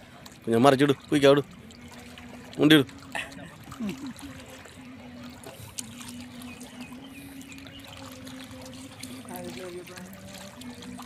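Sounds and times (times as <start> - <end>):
water lapping and trickling: 0.0 - 11.0.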